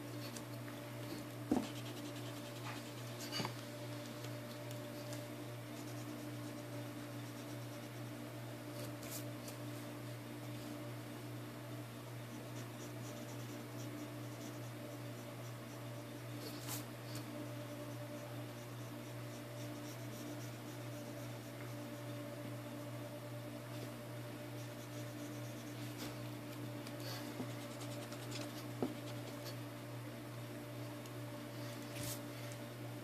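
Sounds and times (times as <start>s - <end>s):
steady low hum: 0.0s - 33.0s
pencil scratching on paper: 1.5s - 3.4s, 5.8s - 8.1s, 12.3s - 22.1s, 24.6s - 26.2s, 27.1s - 29.6s.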